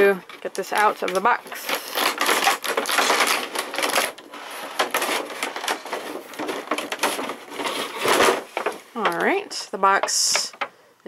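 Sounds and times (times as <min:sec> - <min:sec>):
plastic packaging crinkling: 0:00.0 - 0:10.7.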